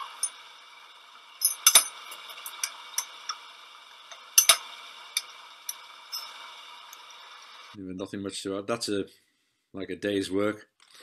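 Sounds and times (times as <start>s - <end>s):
lathe metallic clinks: 0.0s - 0.5s, 1.4s - 3.4s, 4.1s - 6.4s
faint steady hum: 0.0s - 8.1s.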